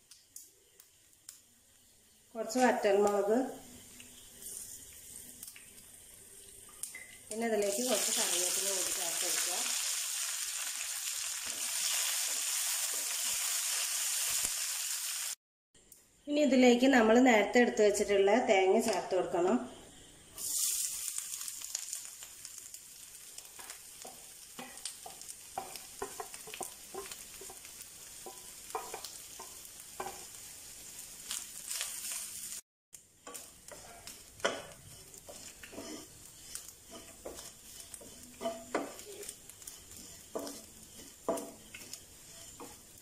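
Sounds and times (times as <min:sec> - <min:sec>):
coconut sizzling in hot oil: 0:00.0 - 0:15.4, 0:19.9 - 0:43.0
spatula scraping a pan: 0:23.5 - 0:30.4, 0:33.3 - 0:43.0.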